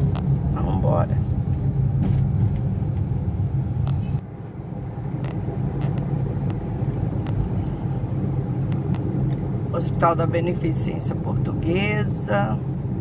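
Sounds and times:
engine and road rumble: 0:00.0 - 0:13.0.

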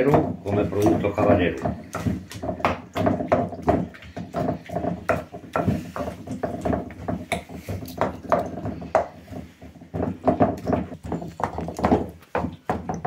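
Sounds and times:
wooden pestle pounding paste: 0:00.0 - 0:13.0.

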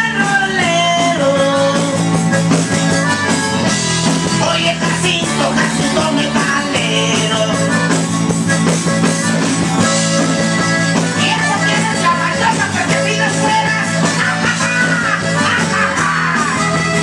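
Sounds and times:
loud dance music: 0:10.9 - 0:17.0.

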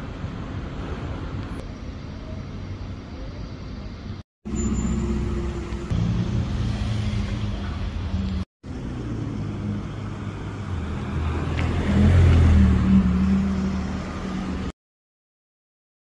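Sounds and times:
city traffic engines: 0:00.0 - 0:14.8
car accelerating away: 0:08.8 - 0:14.7.

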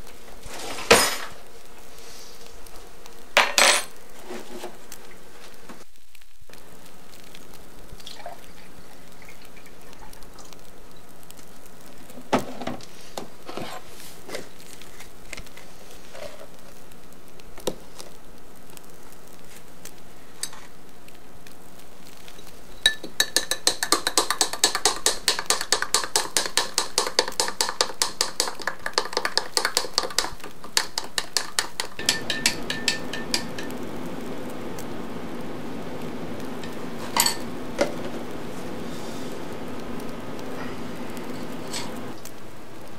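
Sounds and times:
spoon clinking against glass: 0:32.0 - 0:33.7, 0:37.2 - 0:37.5.

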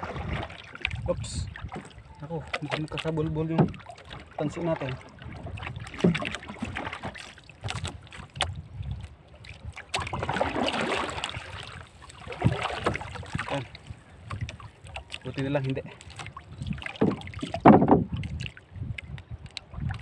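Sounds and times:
wind on microphone: 0:00.0 - 0:02.1, 0:04.6 - 0:20.0
water splashing against boat: 0:00.0 - 0:20.0
knocks on boat hull: 0:16.9 - 0:18.2.

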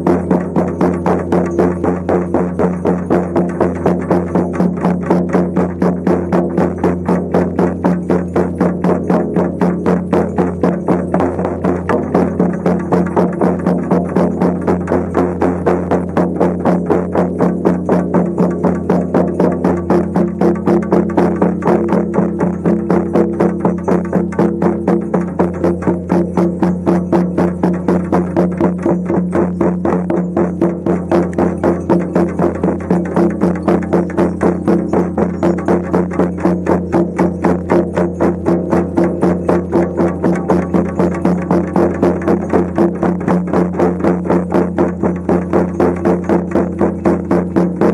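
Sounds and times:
frame drums beating: 0:00.0 - 0:47.9
steady low drone: 0:00.0 - 0:47.9.

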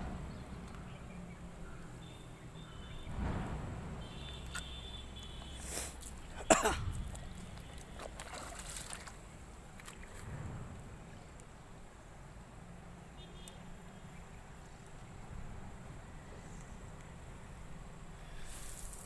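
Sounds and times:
splashing through shallow water: 0:05.6 - 0:11.2.

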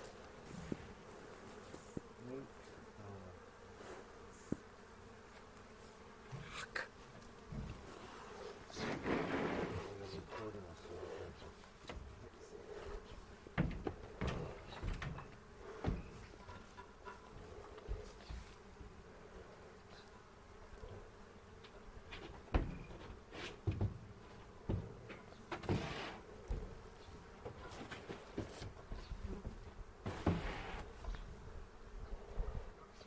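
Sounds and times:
bees buzzing: 0:00.0 - 0:33.0
scraping noises: 0:07.6 - 0:13.3, 0:25.5 - 0:26.3, 0:30.0 - 0:31.0.

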